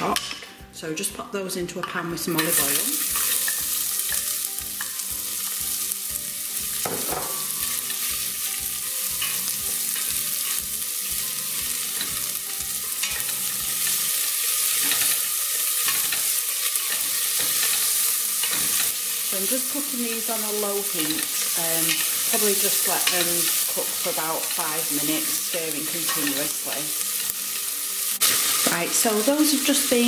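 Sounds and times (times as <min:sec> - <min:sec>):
onions sizzling in oil: 0:02.2 - 0:30.0.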